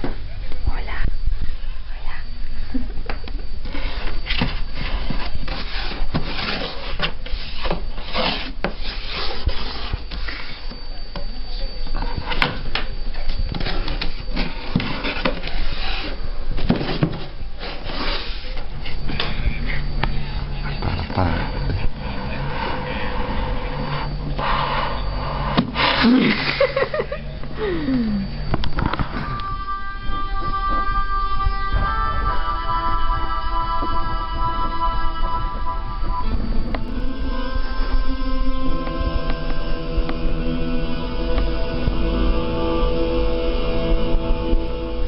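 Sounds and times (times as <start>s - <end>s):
low hum: 0.0s - 45.0s
scratching on cardboard box: 3.8s - 10.7s.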